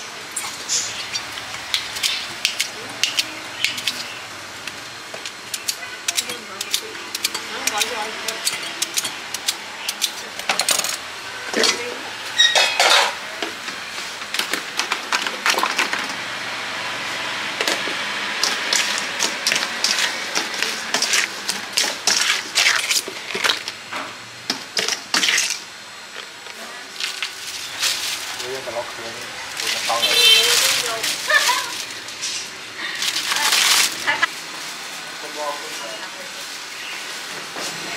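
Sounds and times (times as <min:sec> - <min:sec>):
metal utensils clinking on bowl: 0:00.4 - 0:04.1, 0:05.5 - 0:11.0, 0:11.6 - 0:13.2, 0:18.4 - 0:23.6
scraping stir in metal bowl: 0:18.4 - 0:23.6.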